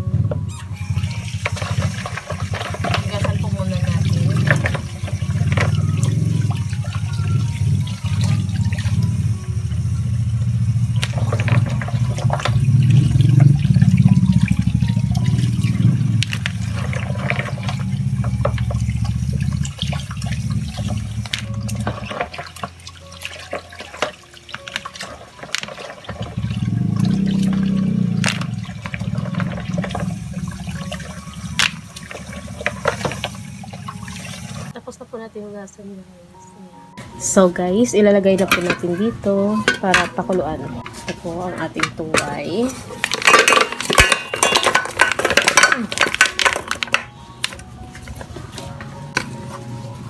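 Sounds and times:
tap water running into basin: 0.9s - 34.8s.

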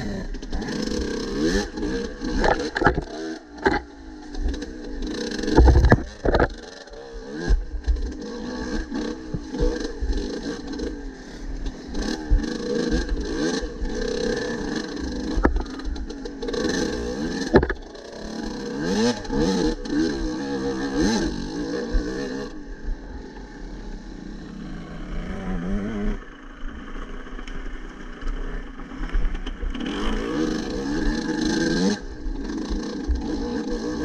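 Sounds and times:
motorcycle engine revving: 0.0s - 34.0s.

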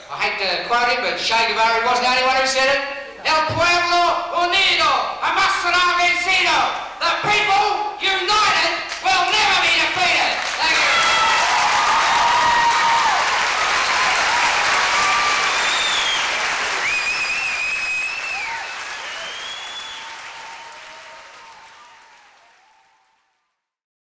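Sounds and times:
audience applauding and cheering: 8.9s - 23.4s.

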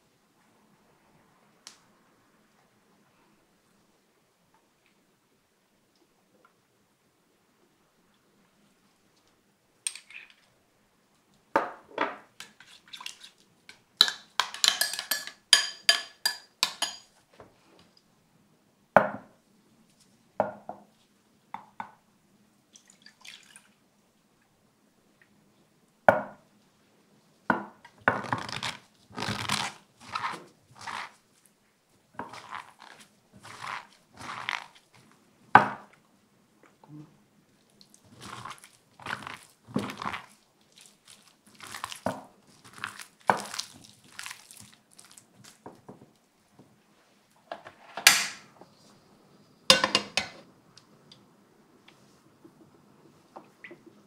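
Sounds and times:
metal spoon clinking against glass bowl: 14.0s - 17.1s
water pouring: 22.7s - 23.7s.

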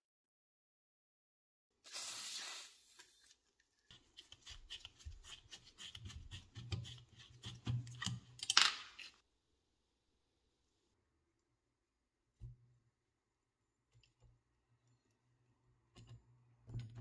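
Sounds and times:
oil spray hissing: 1.9s - 3.0s.

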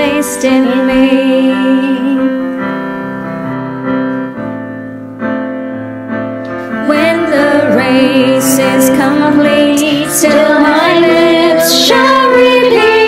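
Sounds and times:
piano playing held chords: 0.0s - 13.0s
group singing a hymn: 6.8s - 13.0s.

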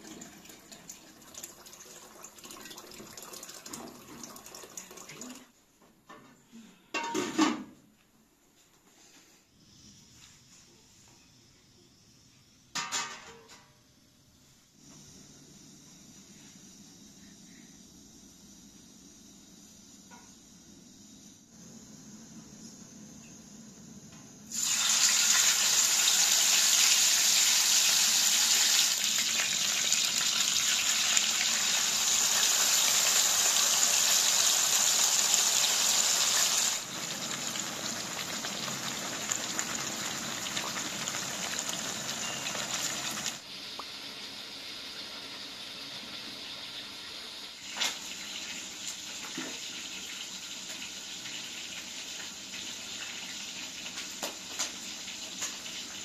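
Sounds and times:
fish frying in hot oil: 24.5s - 56.0s.

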